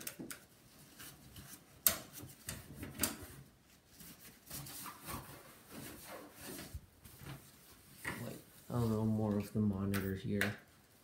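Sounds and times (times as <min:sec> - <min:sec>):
tissue rustling: 0:03.4 - 0:09.7.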